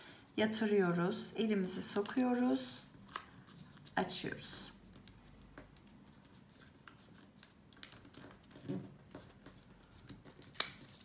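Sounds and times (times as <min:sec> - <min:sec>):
paper rustling and creasing: 0:05.0 - 0:11.0.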